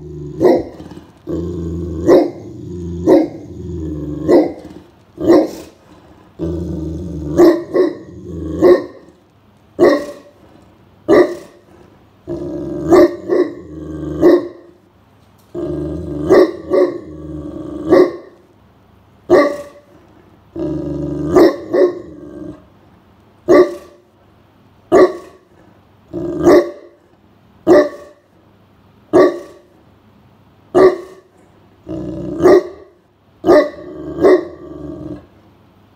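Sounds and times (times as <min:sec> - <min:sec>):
dog barking deeply: 0:00.0 - 0:05.8, 0:07.2 - 0:09.1, 0:09.8 - 0:10.3, 0:11.1 - 0:11.6, 0:12.6 - 0:14.7, 0:15.6 - 0:18.4, 0:19.3 - 0:19.8, 0:20.7 - 0:22.6, 0:23.5 - 0:24.0, 0:24.9 - 0:25.4, 0:26.2 - 0:27.0, 0:27.6 - 0:28.2, 0:29.1 - 0:29.7, 0:30.7 - 0:31.3, 0:31.9 - 0:35.2
dog growling low: 0:00.0 - 0:09.1, 0:12.2 - 0:14.4, 0:15.5 - 0:18.0, 0:20.5 - 0:22.7, 0:26.1 - 0:26.5, 0:31.8 - 0:32.5, 0:33.8 - 0:35.3.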